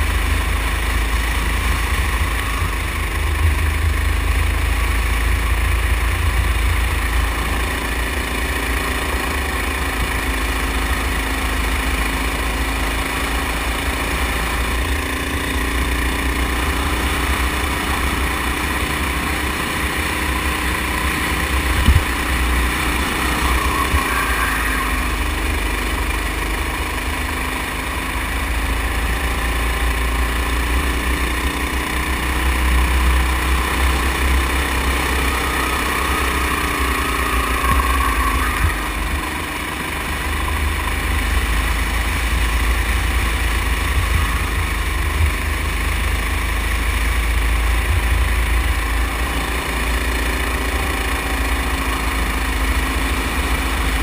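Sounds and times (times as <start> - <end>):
go-kart engine running: 0.0 - 54.0
wind rumble on microphone: 21.7 - 22.2.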